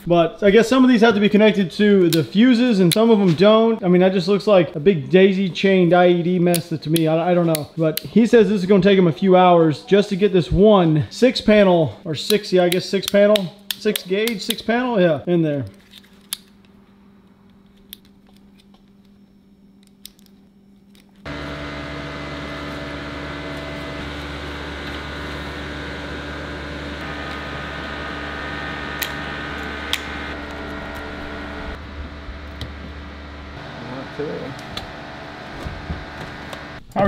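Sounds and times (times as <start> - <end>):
electric fan humming: 0.0 - 11.6, 16.2 - 37.0
wire connectors clicking: 29.0 - 31.1.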